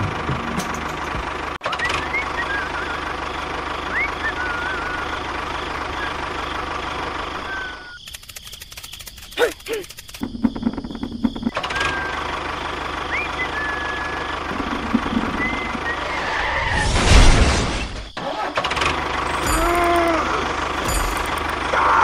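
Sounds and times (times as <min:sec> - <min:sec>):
tractor engine running: 0:00.0 - 0:16.2, 0:18.2 - 0:22.0
rising-and-falling call: 0:15.2 - 0:17.2.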